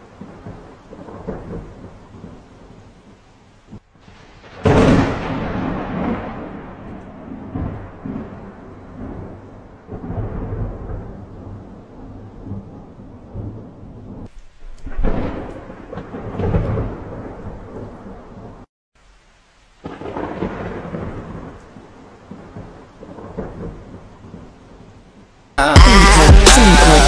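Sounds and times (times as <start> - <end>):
thunder rumbling: 0.0 - 18.7, 19.8 - 24.8
steady rain: 0.0 - 25.6.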